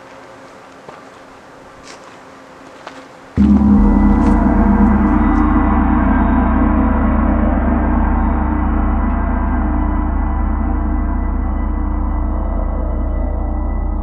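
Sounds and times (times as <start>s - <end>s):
deep metal gong ringing: 3.4s - 14.0s.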